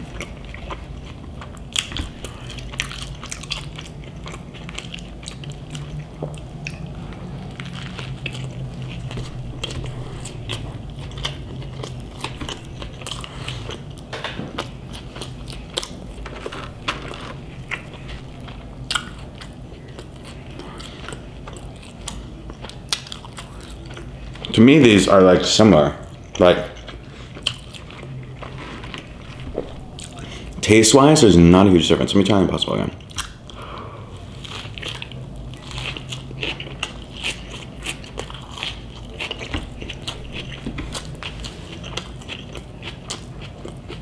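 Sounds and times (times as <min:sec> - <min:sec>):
close-up chewing and mouth smacks: 0:00.0 - 0:24.6, 0:26.0 - 0:30.6, 0:33.0 - 0:44.0
low hum: 0:00.0 - 0:25.1, 0:26.0 - 0:31.4.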